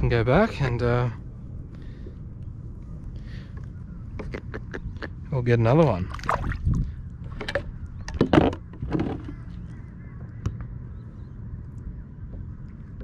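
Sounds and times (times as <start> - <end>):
fish splashing into water: 6.1 - 6.7.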